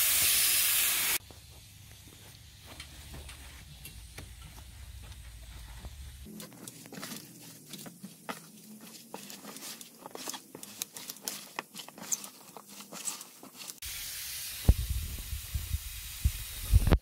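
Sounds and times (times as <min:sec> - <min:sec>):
steady hiss: 0:00.0 - 0:06.3, 0:13.2 - 0:17.0
hands mixing moist soil: 0:01.2 - 0:13.9.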